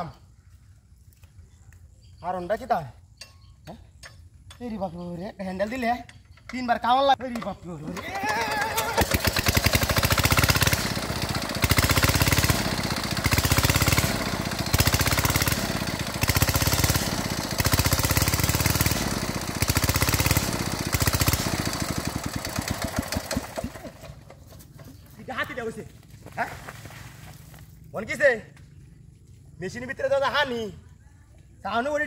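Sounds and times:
small water pump engine running: 0:07.9 - 0:24.6.

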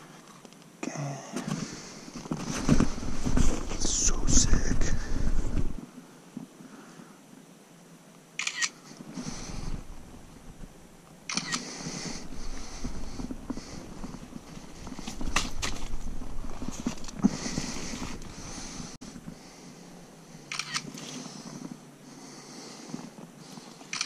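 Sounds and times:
faint rustling: 0:01.3 - 0:07.2, 0:08.4 - 0:24.0
phone camera shutter clicks: 0:08.4 - 0:08.8, 0:11.3 - 0:11.6, 0:20.5 - 0:20.9.

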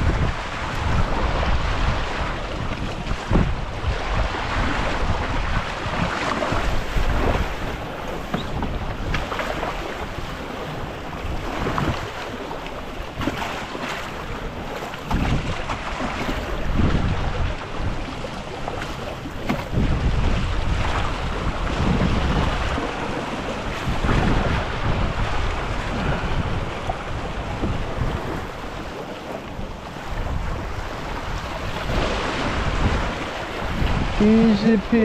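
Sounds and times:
water splashing along hull: 0:00.0 - 0:35.0
wind buffeting microphone: 0:00.0 - 0:35.0.

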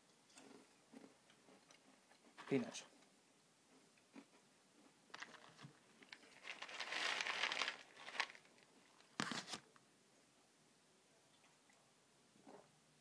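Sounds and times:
snack packet crinkling: 0:05.1 - 0:09.7.

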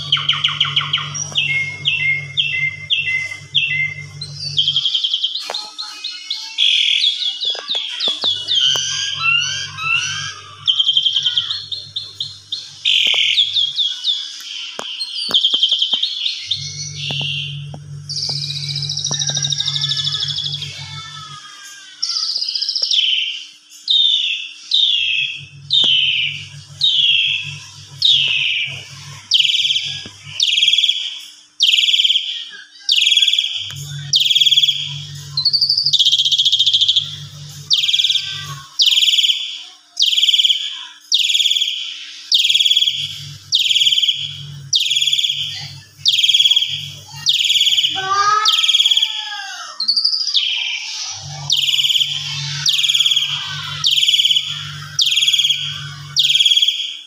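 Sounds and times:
starling harsh falling calls: 0:00.0 - 0:14.4, 0:23.9 - 0:31.0, 0:31.6 - 0:56.7.

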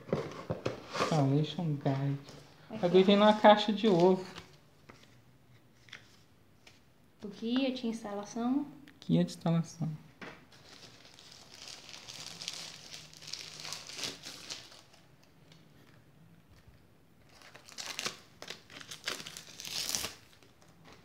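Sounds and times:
plastic film crinkling: 0:10.5 - 0:15.9, 0:17.2 - 0:21.0.

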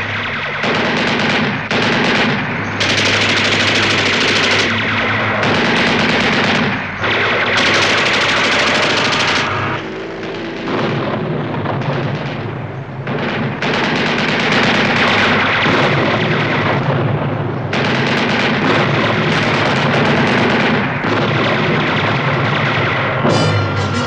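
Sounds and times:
machine-gun fire: 0:00.0 - 0:23.8
orchestral music: 0:23.2 - 0:24.0.

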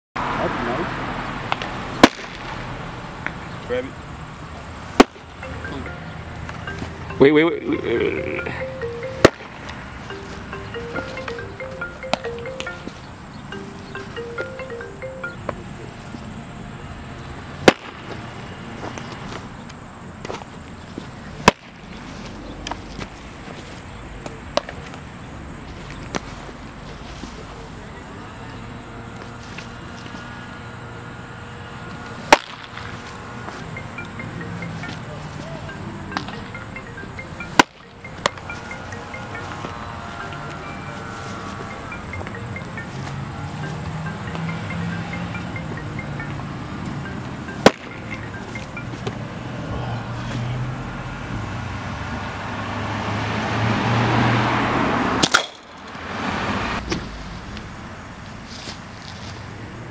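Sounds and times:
car passing: 0:00.2 - 0:59.9
baseball smacking into mitt: 0:01.5 - 0:02.5, 0:05.0 - 0:05.2
baseball smacking into leather mitt: 0:05.0 - 0:05.2.

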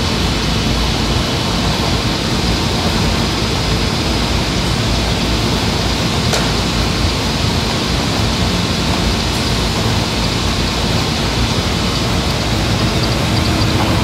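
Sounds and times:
sharp click: 0:06.3 - 0:06.6
cutting machine running: 0:08.8 - 0:14.0.

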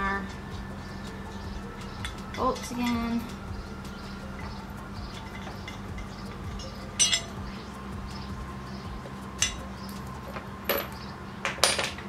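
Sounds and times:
metal bracket clinks: 0:05.2 - 0:07.4, 0:09.4 - 0:12.0.

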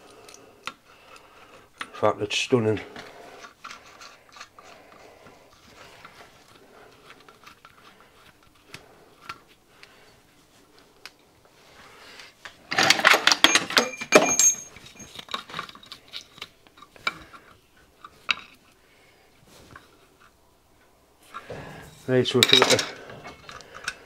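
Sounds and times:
metal tools clattering: 0:12.7 - 0:16.4, 0:21.4 - 0:24.0
metal parts tapping: 0:12.7 - 0:17.4, 0:22.3 - 0:24.0.

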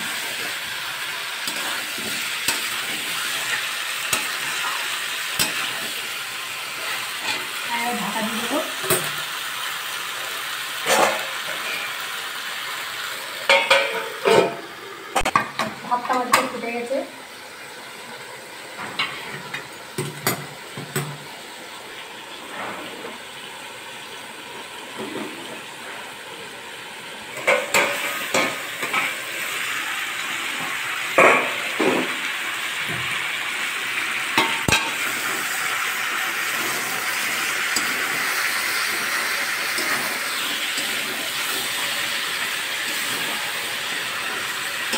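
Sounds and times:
metal spatula scraping pan: 0:00.0 - 0:06.1, 0:36.5 - 0:44.9
chicken and potatoes sizzling: 0:00.0 - 0:44.9.

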